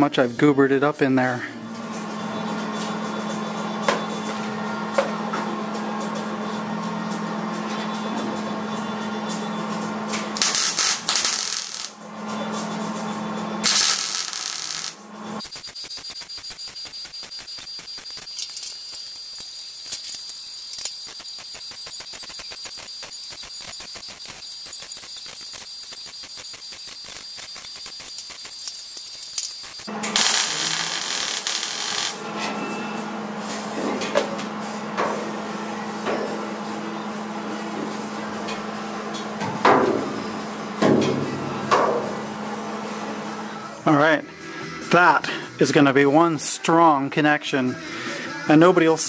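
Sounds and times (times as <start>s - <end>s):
welder hum: 10.3s - 12.0s, 13.6s - 32.2s
welding arc crackling: 10.4s - 12.0s, 13.6s - 32.2s
rapid even ticking: 15.4s - 29.9s.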